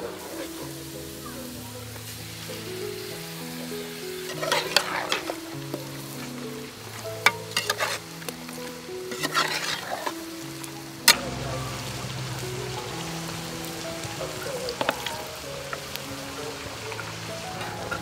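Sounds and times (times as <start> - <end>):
metal ladle scraping cooking pot: 4.3 - 5.4, 7.3 - 8.1, 9.1 - 10.3.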